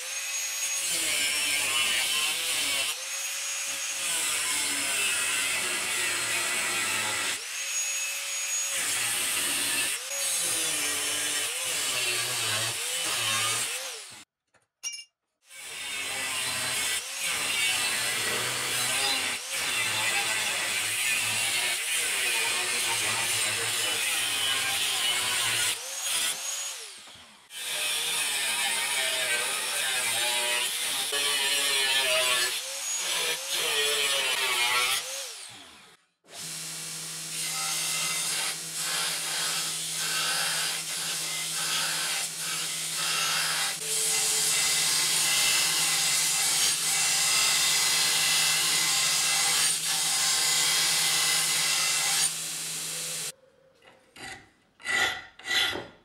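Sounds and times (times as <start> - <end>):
angle grinder cutting steel: 0.0 - 14.3, 15.5 - 53.3
belt sander grinding steel: 15.7 - 35.5, 37.2 - 53.3.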